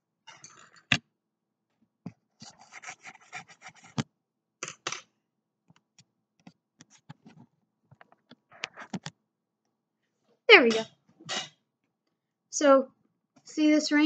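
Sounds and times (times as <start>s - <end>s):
handling rubbing and rustling: 2.4s - 4.0s.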